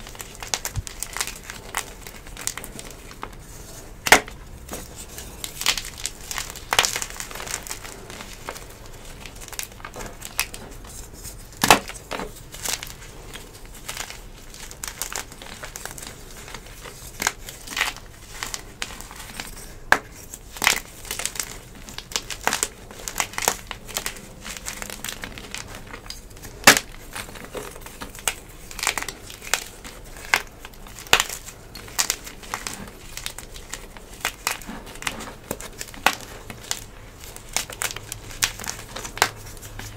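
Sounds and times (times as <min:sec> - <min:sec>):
chalk chunks snapping: 0:00.0 - 0:03.3, 0:04.0 - 0:39.9
chalk crunching and crumbling: 0:00.0 - 0:39.9.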